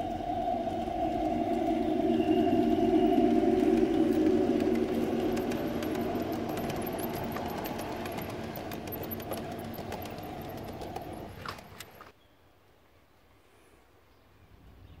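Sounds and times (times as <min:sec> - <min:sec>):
model train motor humming: 0:00.0 - 0:11.9
wheels clicking over track: 0:00.0 - 0:12.1.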